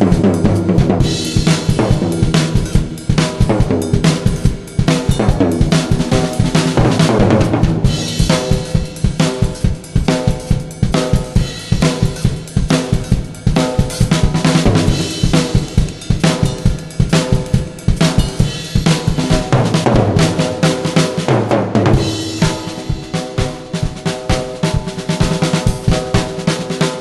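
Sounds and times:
drum kit solo: 0.0s - 27.0s.

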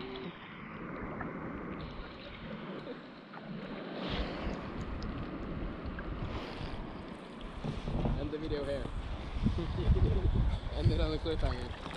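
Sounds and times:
water lapping against kayak hull: 0.0s - 11.9s
wind buffeting microphone: 4.0s - 11.9s.

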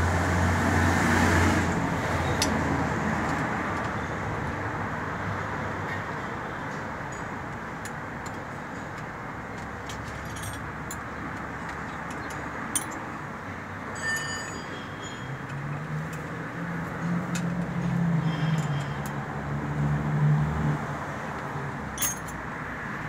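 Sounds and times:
metallic clicks of wrenches: 7.1s - 13.2s, 14.1s - 19.2s, 21.3s - 22.4s.

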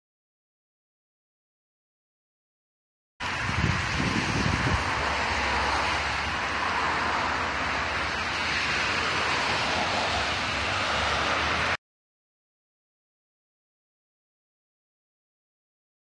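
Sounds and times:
wind buffeting on microphone: 3.2s - 7.2s
wind hiss: 3.2s - 11.8s.

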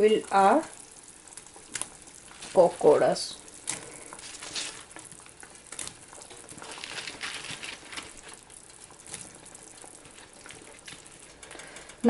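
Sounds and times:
gravy bubbling in a pan: 0.0s - 12.0s
food plopping into gravy: 3.4s - 11.4s.

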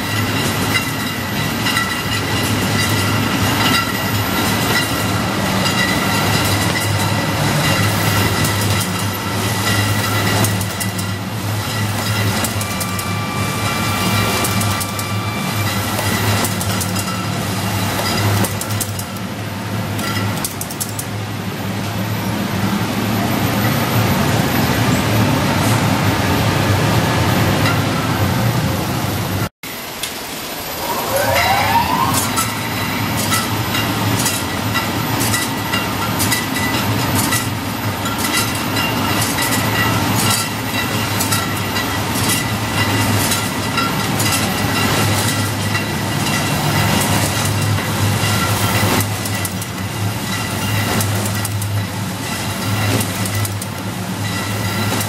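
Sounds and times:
mechanism clicks and clacks: 0.0s - 19.3s, 19.9s - 21.2s, 32.1s - 55.0s
packing machine hum and rattle: 0.0s - 25.9s, 32.2s - 55.0s
short rising whine: 30.1s - 33.8s.

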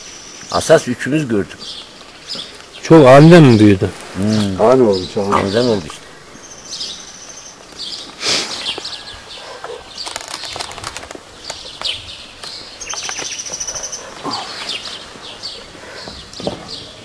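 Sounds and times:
small birds chirping: 0.0s - 17.0s
sharp clicks and rustles: 9.9s - 13.4s.

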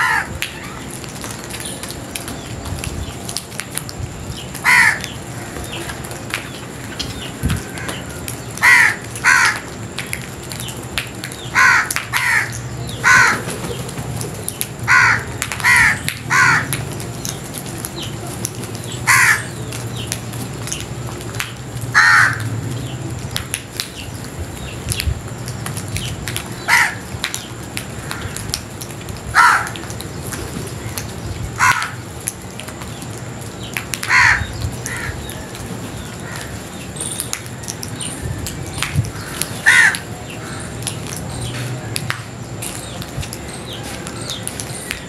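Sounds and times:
crows cawing: 0.0s - 0.8s, 4.6s - 5.6s, 7.6s - 9.7s, 11.5s - 13.5s, 14.9s - 16.8s, 19.1s - 19.6s, 21.9s - 22.5s, 26.6s - 27.0s, 28.0s - 28.5s, 29.3s - 29.9s, 31.6s - 32.0s, 34.0s - 35.3s, 36.2s - 36.6s, 39.1s - 40.7s.

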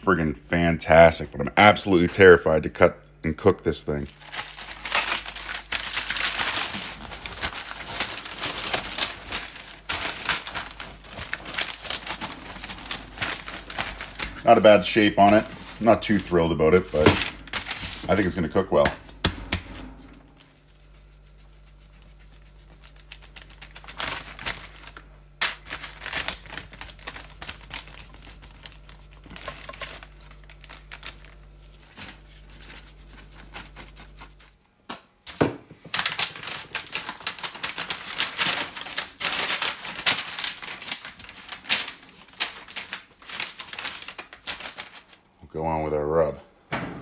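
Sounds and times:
steady low hum: 0.0s - 34.9s
paper crinkling and rustling: 3.9s - 34.6s, 35.8s - 45.2s.

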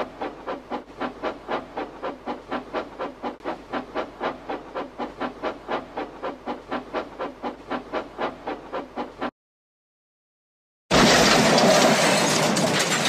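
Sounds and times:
steam locomotive chuffing: 0.0s - 9.3s.

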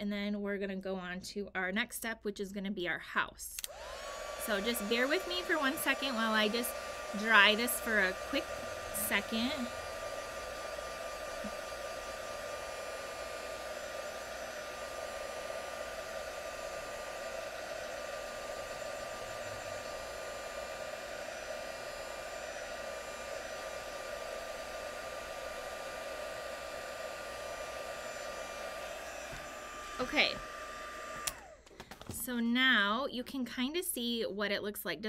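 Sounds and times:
heat gun fan hum: 3.6s - 32.0s
thin steady whine: 3.8s - 31.6s.

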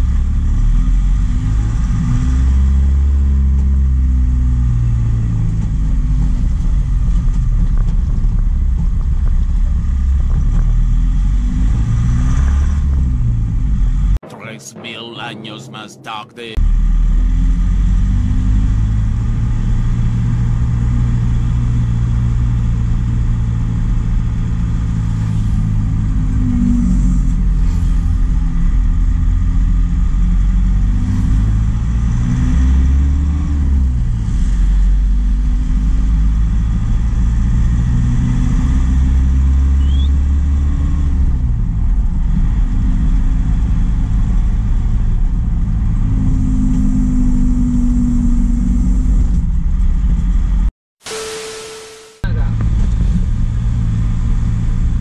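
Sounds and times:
truck engine revving: 16.6s - 45.0s.

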